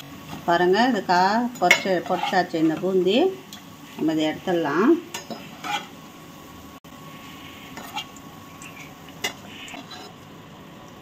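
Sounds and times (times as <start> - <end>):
ghee sizzling in a pan: 0.0 - 11.0
metal tongs clinking against pan: 1.5 - 2.4.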